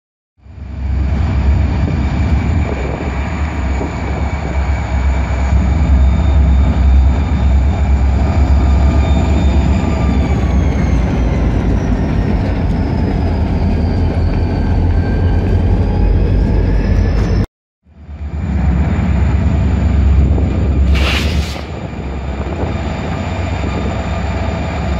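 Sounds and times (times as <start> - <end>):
diesel locomotive engine rumble: 0.4 - 24.9.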